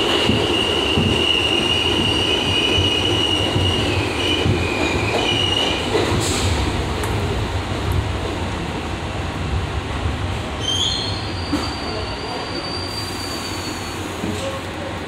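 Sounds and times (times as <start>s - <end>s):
subway train wheels rumbling: 0.0s - 15.0s
high wheel squeal: 10.6s - 14.2s.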